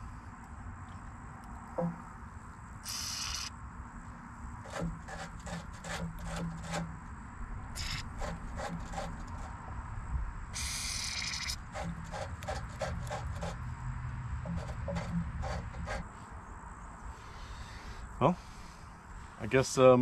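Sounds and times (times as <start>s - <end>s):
aerosol can spraying: 2.8s - 3.5s, 7.8s - 8.1s, 10.6s - 12.5s
hands rubbing metal fittings: 7.8s - 9.5s, 10.6s - 13.6s, 14.5s - 16.0s.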